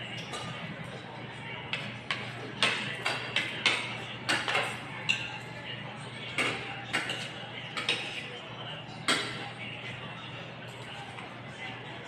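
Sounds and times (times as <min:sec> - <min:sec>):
cutlery clinking on plates: 0:00.1 - 0:01.0, 0:01.7 - 0:05.5, 0:06.2 - 0:08.4, 0:09.0 - 0:09.5.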